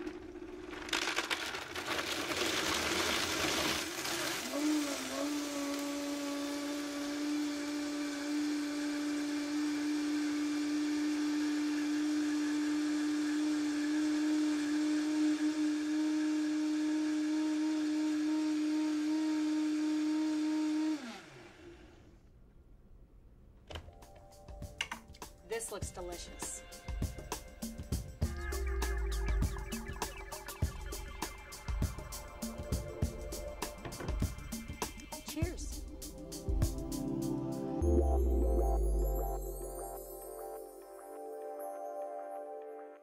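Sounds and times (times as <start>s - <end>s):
blender crushing ice: 0.0s - 22.0s
blender motor whine: 0.0s - 22.2s.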